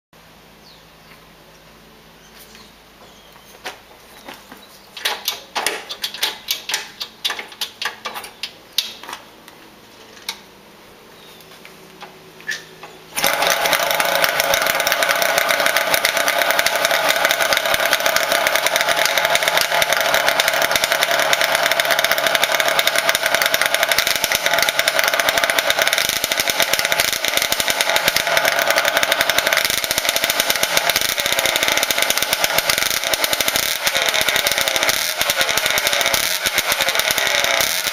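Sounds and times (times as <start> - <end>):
clicks and knocks: 5.0 - 9.3
motorcycle engine running: 13.1 - 37.9.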